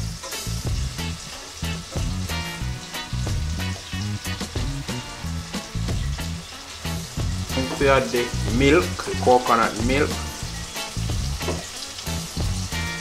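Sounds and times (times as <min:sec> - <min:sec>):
background music with beat: 0:00.0 - 0:13.0
vegetables sizzling in a pot: 0:00.0 - 0:13.0.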